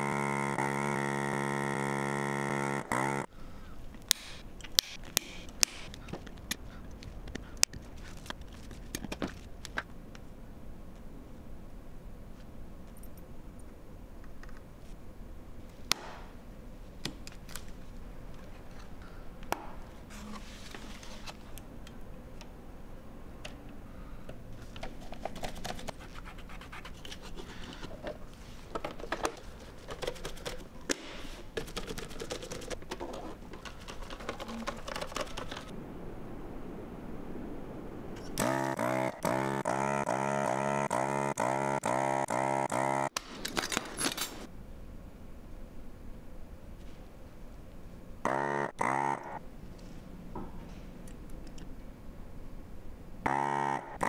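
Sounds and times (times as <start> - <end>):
pulsing buzzing tone: 0.0 - 3.3, 38.3 - 43.1, 48.2 - 49.4, 53.2 - 54.0.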